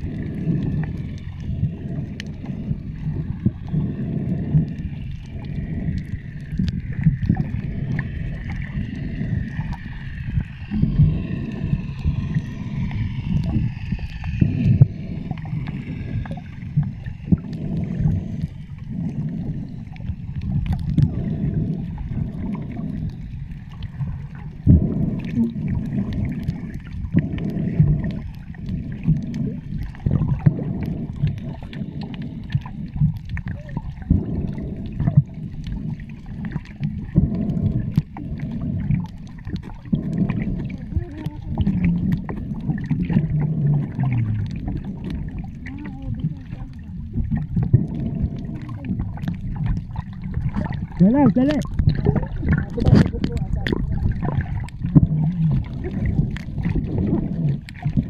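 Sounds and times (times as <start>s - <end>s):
small clicks and bubble ticks: 0.0s - 58.0s
underwater water rushing and sloshing: 0.0s - 58.0s.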